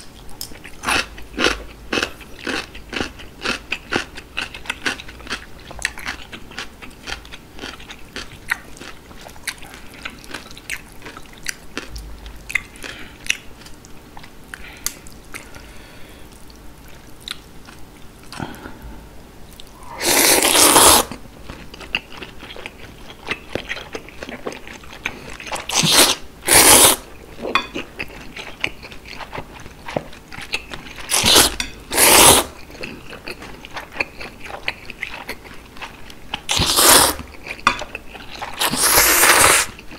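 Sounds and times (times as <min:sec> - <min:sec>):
noodle slurping: 0:19.8 - 0:21.2, 0:25.7 - 0:27.0, 0:31.1 - 0:32.5, 0:36.5 - 0:37.2, 0:38.6 - 0:39.7.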